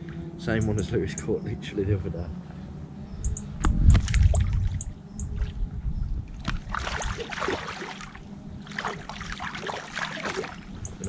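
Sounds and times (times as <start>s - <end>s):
water sloshing and splashing: 3.9s - 5.7s, 6.3s - 11.0s.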